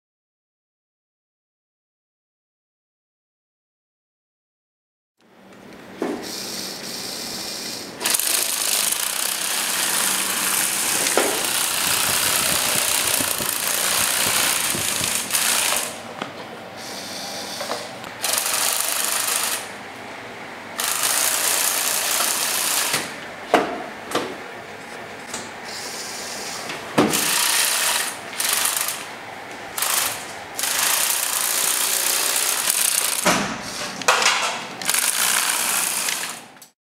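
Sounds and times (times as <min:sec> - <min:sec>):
toy motors whirring through gears: 0:06.4 - 0:16.0, 0:18.2 - 0:19.7, 0:20.8 - 0:23.1, 0:27.1 - 0:29.1, 0:29.7 - 0:33.3, 0:34.8 - 0:36.6.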